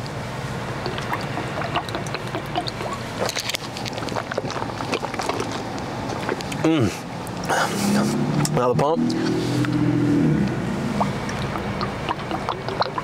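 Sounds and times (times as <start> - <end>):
low steady hum: 0.0 - 13.0
small clicks and mouth noises: 0.8 - 7.6, 10.4 - 13.0
man gulping water: 0.8 - 7.7, 10.4 - 13.0.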